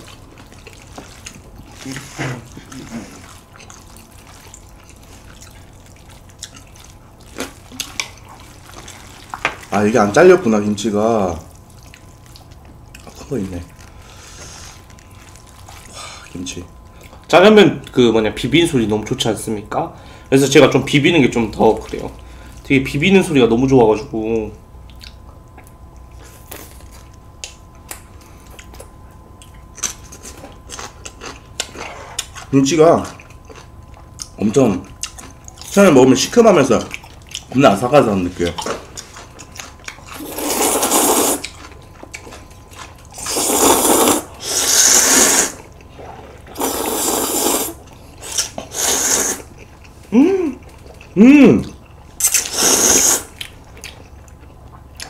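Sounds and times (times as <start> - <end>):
chewing and slurping noodles: 0.0 - 9.7, 28.4 - 35.8, 38.4 - 55.0
wet mouth clicks: 51.6 - 54.1.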